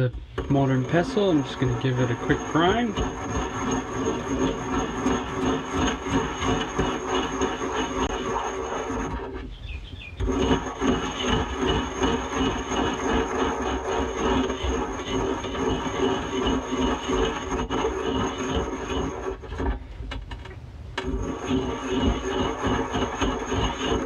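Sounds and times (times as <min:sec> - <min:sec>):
pestle grinding in mortar: 0:00.0 - 0:19.8, 0:21.0 - 0:24.0.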